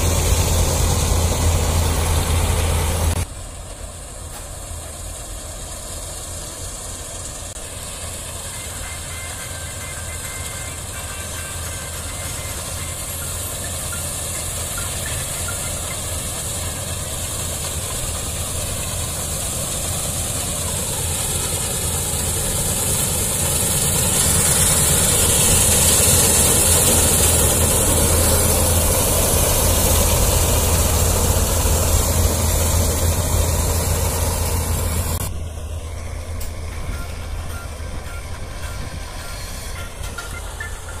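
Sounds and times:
combine harvester engine drone: 0.0s - 41.0s
hiss of machinery and crop: 0.0s - 41.0s.

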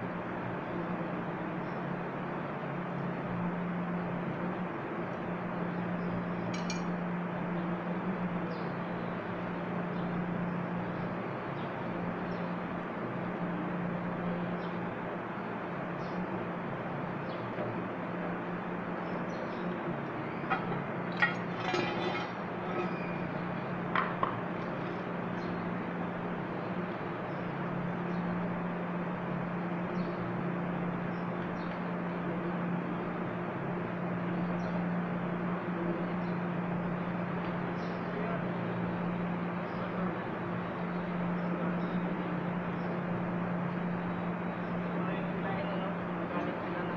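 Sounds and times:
low machine hum: 0.0s - 46.9s
hand tool clinking on metal: 20.5s - 23.2s.

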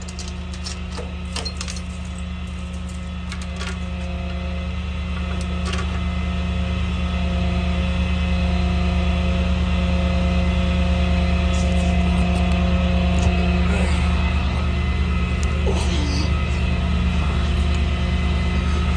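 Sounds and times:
tow chain clinks: 0.0s - 3.8s
truck engine running: 0.0s - 18.9s.

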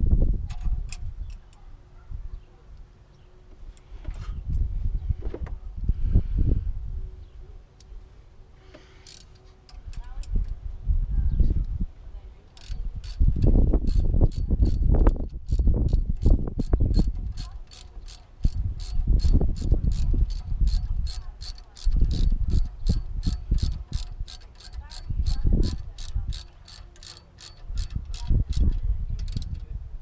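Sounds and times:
ratchet wrench clicking: 8.9s - 10.4s, 12.5s - 29.7s.

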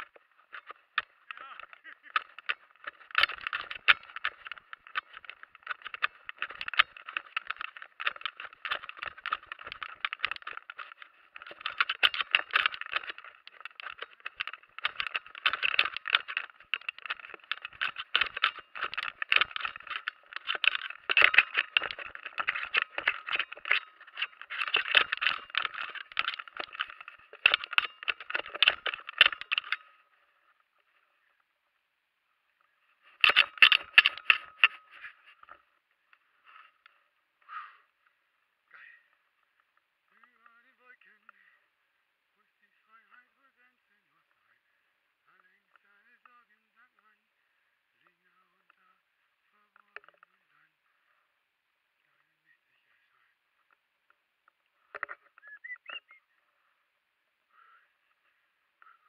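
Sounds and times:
running over frosty grass: 0.0s - 31.4s
rattling and scraping on camera: 0.0s - 31.5s, 32.3s - 59.0s.

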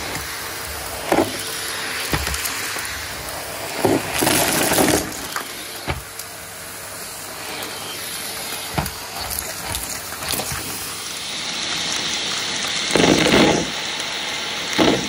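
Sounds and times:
vacuum head knocking: 0.0s - 3.1s, 3.7s - 6.2s, 8.5s - 10.9s
debris rattling up vacuum wand: 0.0s - 6.3s, 7.6s - 11.0s
vacuum cleaner hum and whine: 0.0s - 15.0s.

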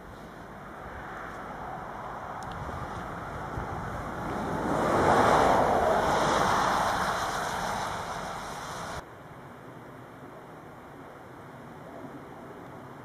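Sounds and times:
rushing noise: 0.0s - 9.0s
faint hiss: 5.7s - 12.9s.

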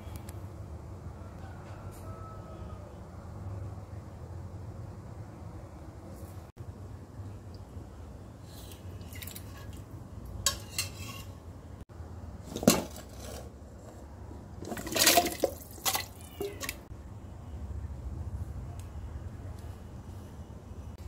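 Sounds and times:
steel spoon clinking on pot: 10.4s - 11.4s
food splashing into water: 14.6s - 16.9s.

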